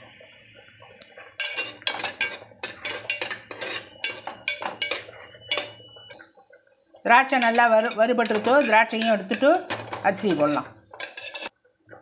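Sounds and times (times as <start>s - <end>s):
raisins frying: 0.0s - 12.0s
ladle scraping metal pot: 1.3s - 6.3s, 7.1s - 11.5s.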